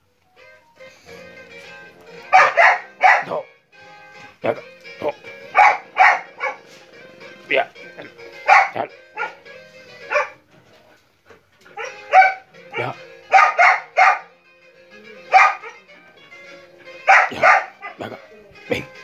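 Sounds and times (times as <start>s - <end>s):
dogs barking: 2.2s - 3.5s, 5.4s - 6.9s, 8.2s - 10.5s, 11.6s - 14.4s, 15.2s - 16.0s, 16.9s - 18.2s.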